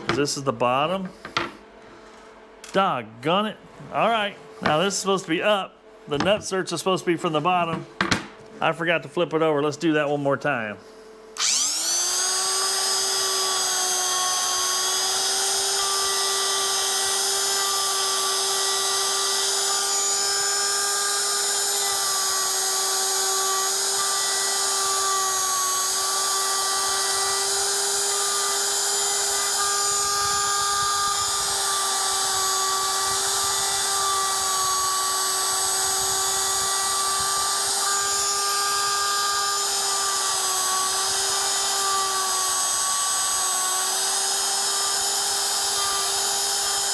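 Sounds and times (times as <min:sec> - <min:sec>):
trim router high whine: 0:10.8 - 0:46.9.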